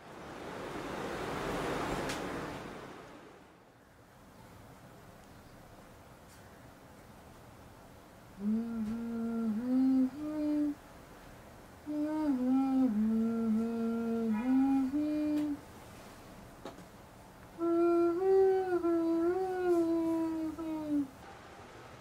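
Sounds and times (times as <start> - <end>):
woman humming lullaby: 8.4 - 10.8, 11.8 - 15.6, 17.6 - 21.2.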